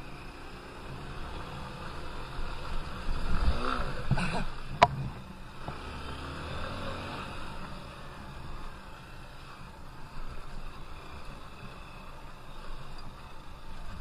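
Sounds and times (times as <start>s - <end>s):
motorcycle engine revving: 0.0s - 9.2s.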